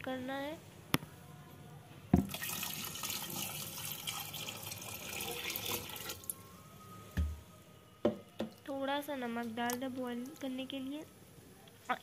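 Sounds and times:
water pouring into a pot: 2.2s - 6.4s
jug knocking: 8.0s - 8.6s.

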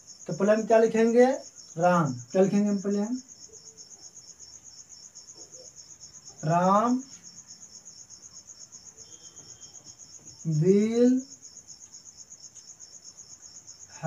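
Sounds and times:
cricket chirping: 0.0s - 14.0s.

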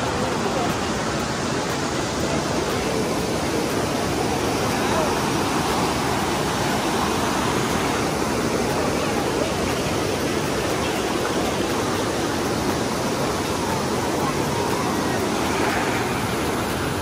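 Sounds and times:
water pouring down cascades: 0.0s - 17.0s.

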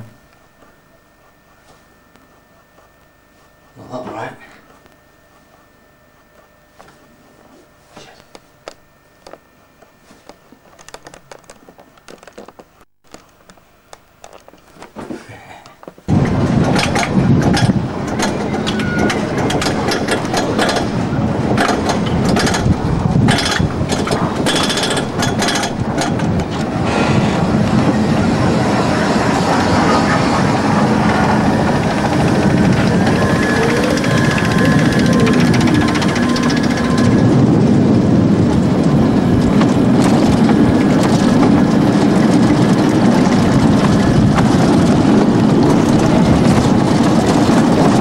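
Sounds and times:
roller coaster rumbling on track: 16.1s - 48.0s.

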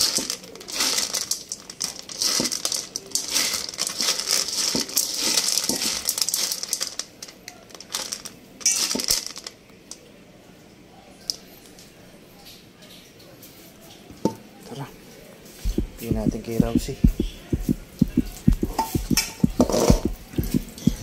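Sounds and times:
kibble rattling in a metal bowl: 0.0s - 10.0s.

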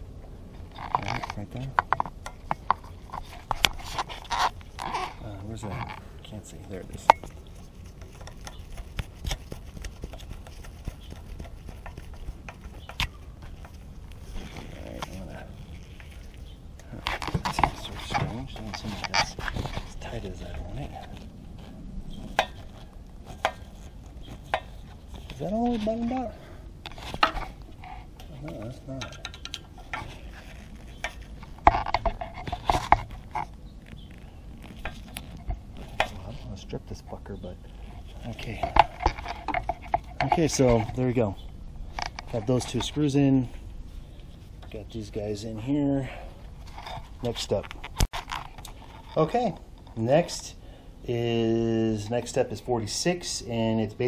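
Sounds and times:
metal tool clinking and scraping: 6.6s - 9.4s, 37.8s - 41.3s
sharp clicks and knocks: 28.2s - 36.3s.

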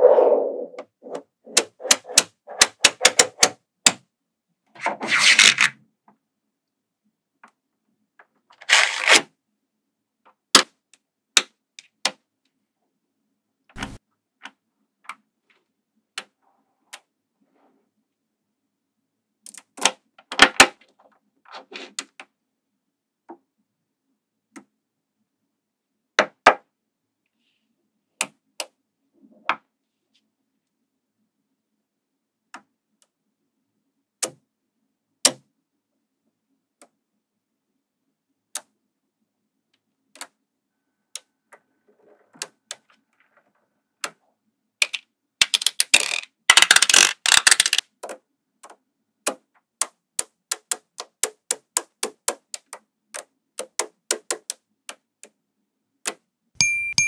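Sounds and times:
magnetic balls clattering rattle: 44.8s - 47.8s
magnetic balls clicking: 44.8s - 48.2s.

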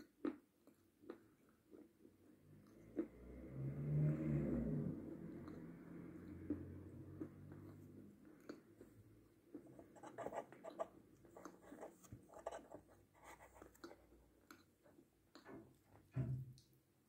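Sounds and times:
chewing sweets: 0.0s - 3.2s, 5.4s - 12.9s, 13.5s - 15.5s.

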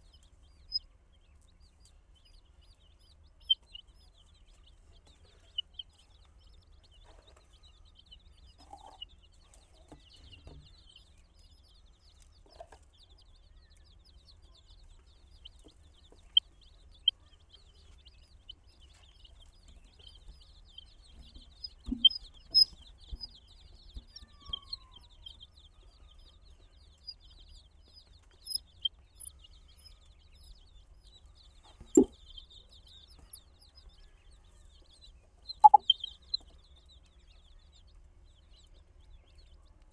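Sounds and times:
baby chicks cheeping: 0.0s - 39.9s
soft thumps: 21.8s - 23.2s.

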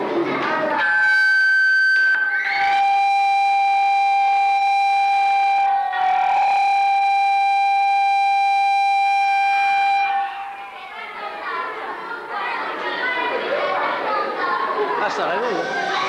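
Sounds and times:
loud steady electronic tone: 0.7s - 11.1s.

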